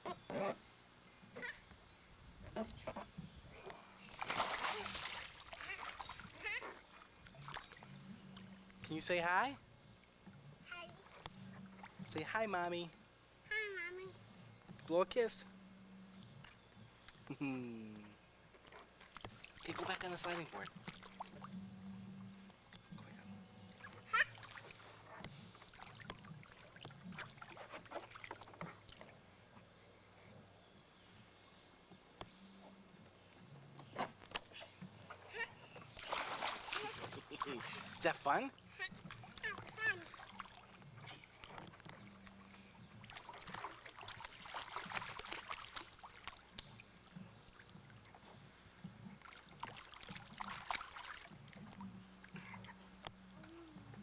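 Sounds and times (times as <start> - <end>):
water sloshing and splashing: 4.0 - 8.8, 10.0 - 12.5, 18.5 - 21.6, 22.2 - 29.3, 34.0 - 53.2.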